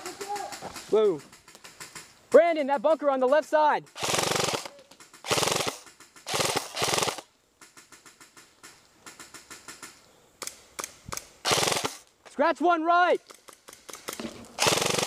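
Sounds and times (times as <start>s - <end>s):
airsoft rifle full-auto bursts: 3.9s - 7.3s, 11.4s - 12.0s, 13.7s - 15.0s.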